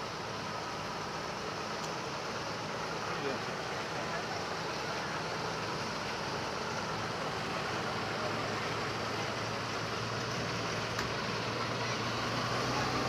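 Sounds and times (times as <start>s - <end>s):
diesel truck engine humming: 0.0s - 13.0s.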